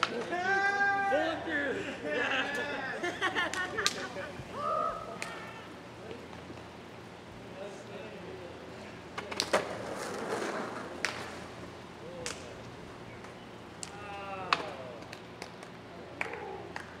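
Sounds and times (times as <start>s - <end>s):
men shouting in celebration: 0.1s - 3.1s
skateboard clacks on pavement: 9.1s - 17.0s.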